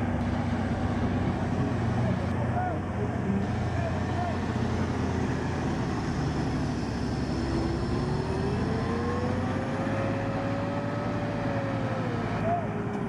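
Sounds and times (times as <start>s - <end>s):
tractor diesel engine under load: 0.0s - 13.0s
whine rising in pitch: 4.8s - 13.0s.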